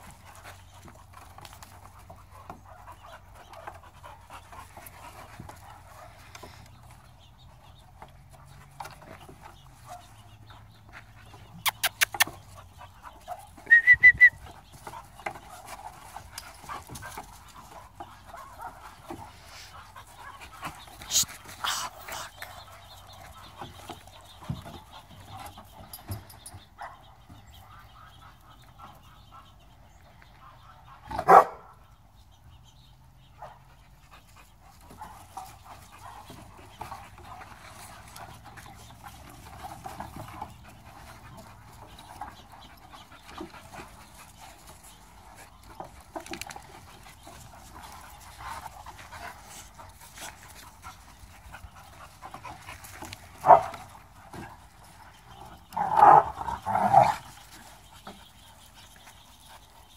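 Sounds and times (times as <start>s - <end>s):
dogs panting while playing: 0.0s - 59.9s
dog barking: 31.2s - 31.7s.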